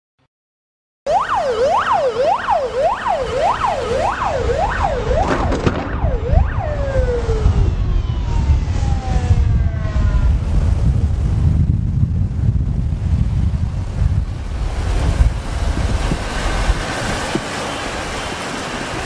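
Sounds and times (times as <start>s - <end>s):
siren sweeping up and down: 1.1s - 11.1s
engine and road rumble: 1.1s - 19.0s.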